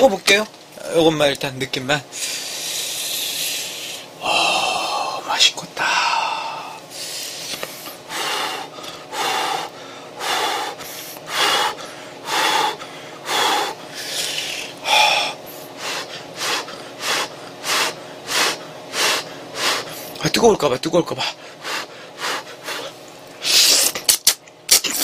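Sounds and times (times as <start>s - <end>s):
man huffing breaths: 6.0s - 20.2s.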